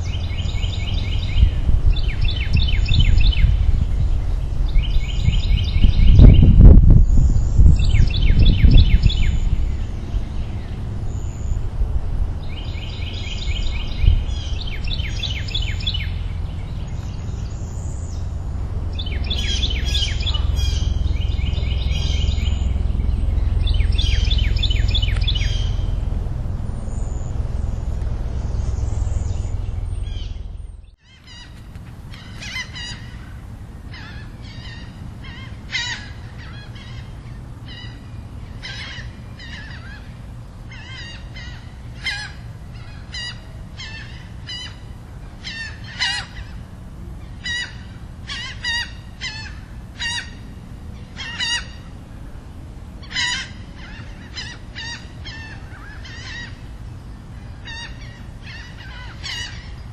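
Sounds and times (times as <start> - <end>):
low steady rumble: 0.0 - 59.9
songbirds singing: 0.0 - 59.9
high bird chirps: 12.4 - 31.6.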